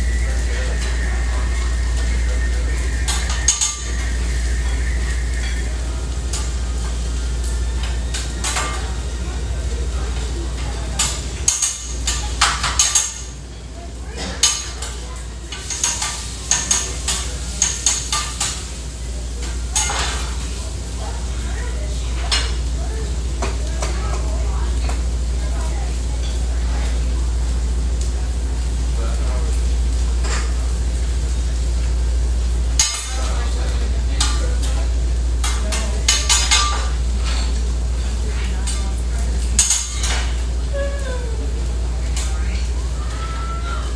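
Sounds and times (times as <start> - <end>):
steady low hum: 0.0 - 21.4
food sizzling on griddle: 0.0 - 43.9
metal spatula clanking on griddle: 3.0 - 4.4, 7.8 - 9.0, 10.1 - 13.4, 14.1 - 18.8, 19.4 - 20.4, 22.2 - 22.6, 32.8 - 34.8, 35.4 - 40.4
utensils clinking and scraping: 14.2 - 18.7.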